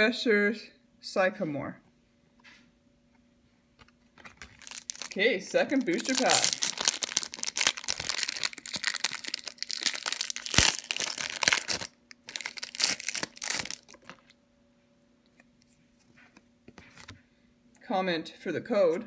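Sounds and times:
foil wrapper crinkling: 3.9s - 14.4s.

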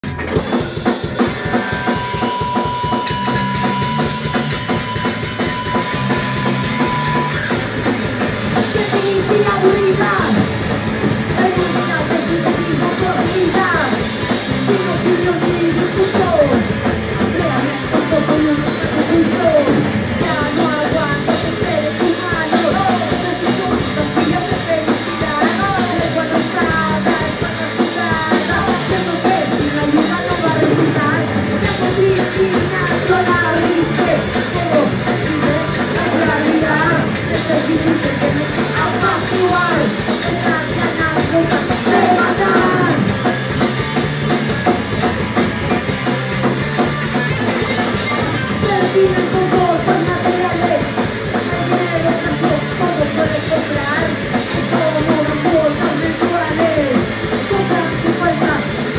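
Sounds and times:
bass guitar: 0.0s - 58.9s
drum kit: 0.0s - 58.9s
electric guitars: 0.0s - 58.9s
woman singing: 8.6s - 10.4s, 11.4s - 16.7s, 17.4s - 43.1s, 48.6s - 58.9s.

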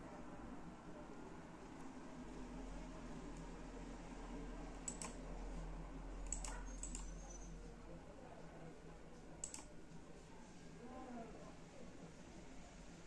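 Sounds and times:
computer clicks: 4.9s - 5.2s, 6.2s - 7.2s, 9.4s - 9.7s.

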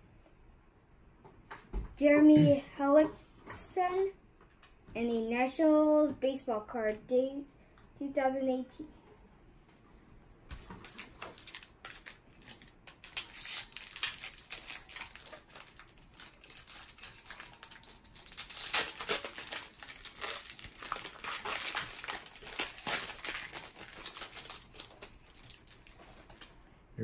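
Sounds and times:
foil wrapper crinkling: 10.5s - 26.6s.

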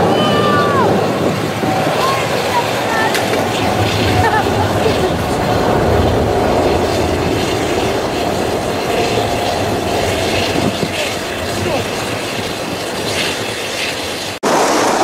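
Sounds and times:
machinery low rumble: 0.0s - 14.4s
turbine whine: 0.0s - 15.0s.

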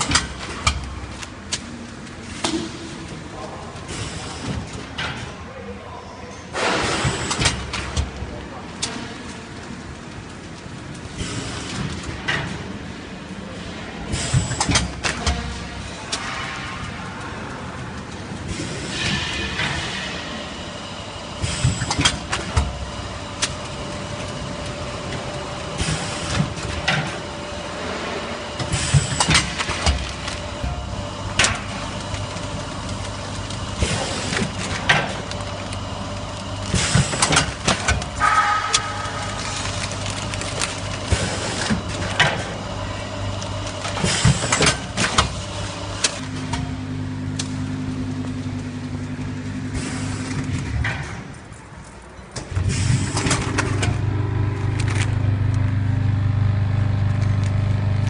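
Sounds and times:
bagging machine clacks and clatters: 0.0s - 58.0s
machine hum: 6.8s - 58.0s
deeper steady hum: 52.4s - 58.0s.

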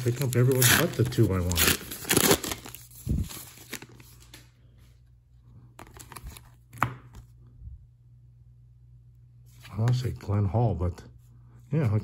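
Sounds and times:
wrapper tearing and crinkling: 0.0s - 4.4s
cards rustling and clicking: 5.8s - 7.3s.

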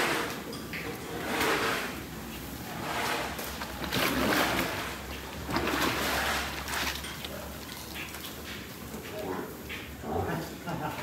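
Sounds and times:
bucket splashing in feed slurry: 2.6s - 8.7s.

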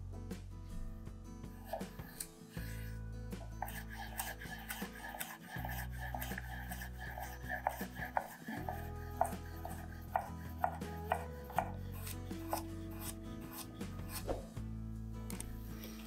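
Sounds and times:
knife chopping on cutting board: 1.6s - 14.5s.

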